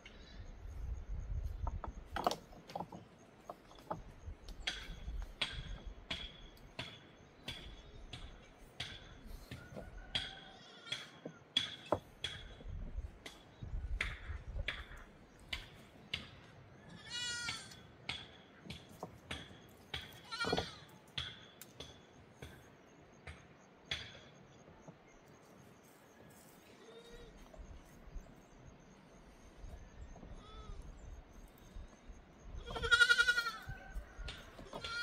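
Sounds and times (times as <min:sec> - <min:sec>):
sharp knocks and taps: 0:01.6 - 0:16.5, 0:17.5 - 0:25.2
livestock bleating: 0:16.9 - 0:17.8, 0:20.2 - 0:20.9, 0:30.3 - 0:30.9, 0:32.6 - 0:33.7, 0:34.8 - 0:35.0.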